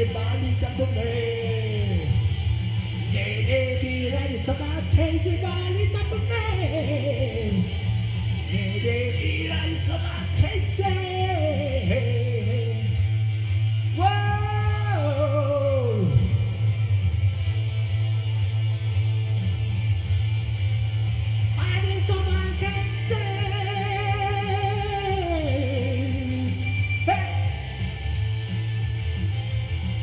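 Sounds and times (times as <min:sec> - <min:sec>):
man singing rock song: 0:00.0 - 0:16.9, 0:21.6 - 0:28.2
electric guitar: 0:00.0 - 0:30.0
low bass line: 0:00.0 - 0:30.0
ticking beat: 0:00.0 - 0:30.0.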